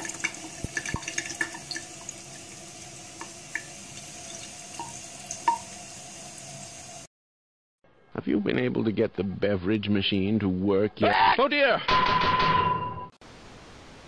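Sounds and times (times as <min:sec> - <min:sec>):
water plinks and drips: 0:00.0 - 0:02.6, 0:03.2 - 0:05.8
water running into sink: 0:00.0 - 0:07.1.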